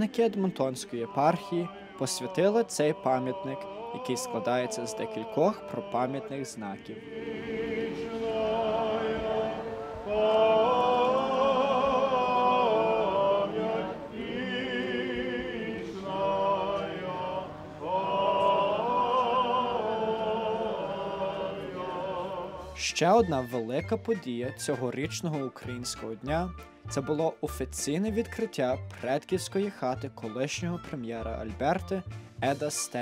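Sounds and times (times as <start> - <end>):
men chanting liturgical chant: 0.0 - 22.8.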